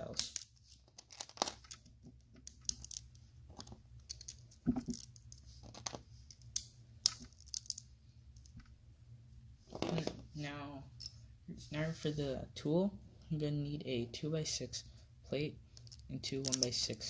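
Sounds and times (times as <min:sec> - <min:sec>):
plastic bricks clicking: 0:02.4 - 0:07.8.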